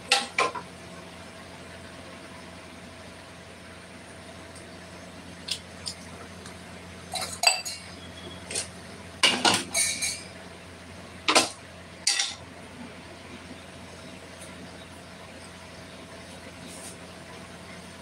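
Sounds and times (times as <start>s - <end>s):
steady low hum: 0.0s - 18.0s
metal cookware clinking: 7.1s - 10.3s, 11.3s - 12.4s.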